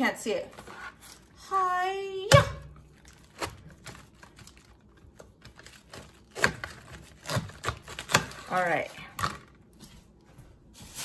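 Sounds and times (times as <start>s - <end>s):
cabbage leaves cracking: 3.0s - 8.8s.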